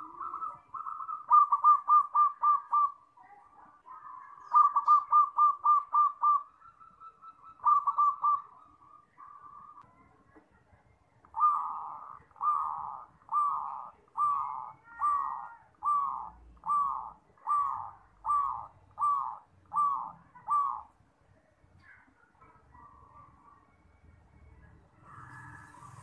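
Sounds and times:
dove cooing: 0.0 - 3.1, 3.8 - 10.2, 11.3 - 21.0.

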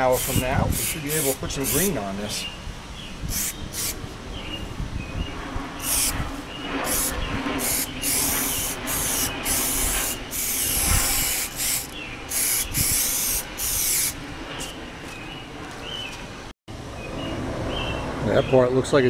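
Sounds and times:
aerosol can spraying: 0.0 - 2.0, 3.3 - 4.0, 5.8 - 6.2, 6.8 - 14.2.

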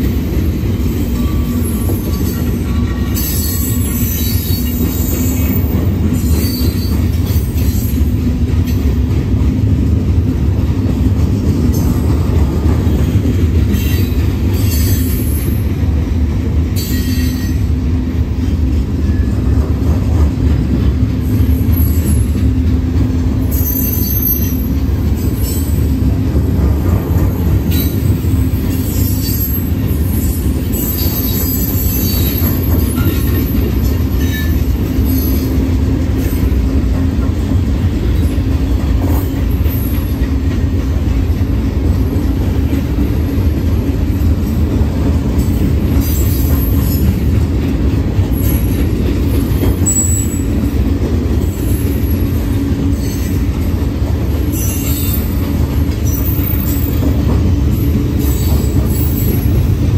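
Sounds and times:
steel wheels rumbling on rails: 0.0 - 59.9
high-pitched wheel squeal: 49.8 - 50.5.

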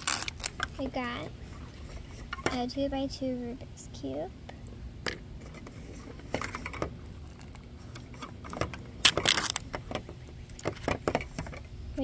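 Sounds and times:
wrapper crinkling torn open: 0.0 - 0.6, 7.2 - 7.6, 9.0 - 9.7.

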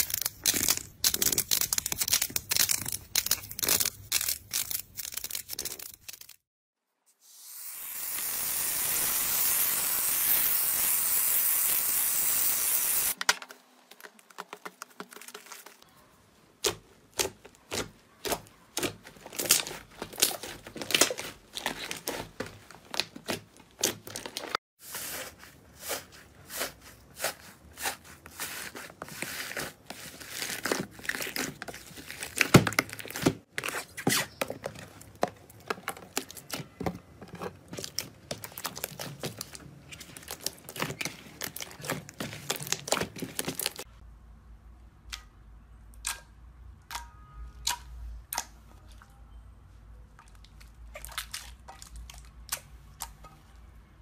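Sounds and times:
aerosol can spraying: 7.2 - 13.2.

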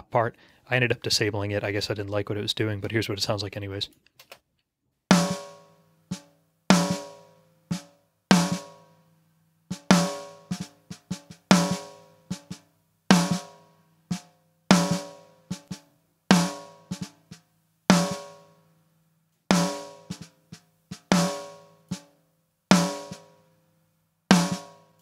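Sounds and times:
snare drum hits: 5.1 - 5.5, 6.1 - 8.7, 9.7 - 13.5, 14.1 - 18.4, 19.5 - 22.1, 22.7 - 23.3, 24.3 - 24.8.

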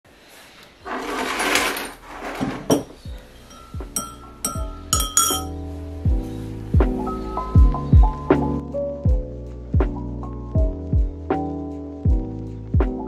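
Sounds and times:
soft music with kick drum: 2.9 - 13.0
teaspoon clinking in ceramic mug: 3.5 - 5.6.

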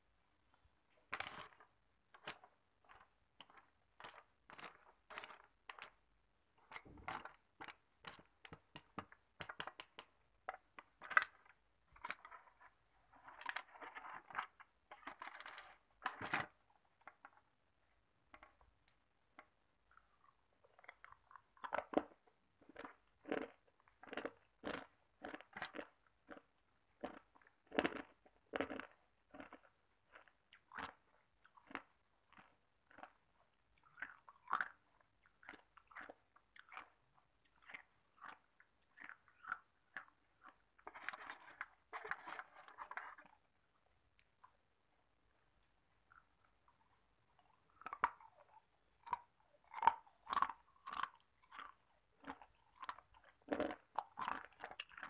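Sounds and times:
ice cubes being chewed: 1.1 - 6.0, 19.4 - 44.6, 46.0 - 55.0.

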